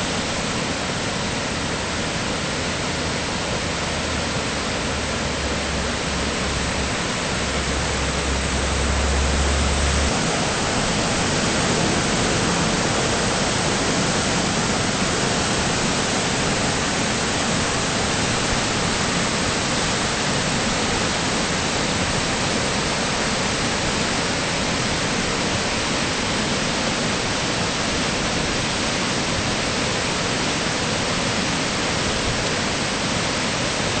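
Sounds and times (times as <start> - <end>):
river rushing through rapids: 0.0 - 34.0
low rumble: 4.9 - 17.0.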